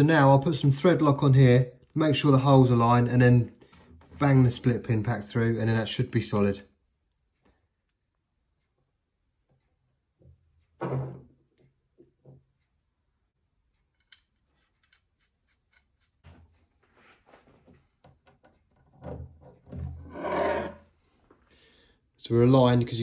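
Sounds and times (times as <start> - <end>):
metal shaft scraping in joint: 20.0 - 20.9.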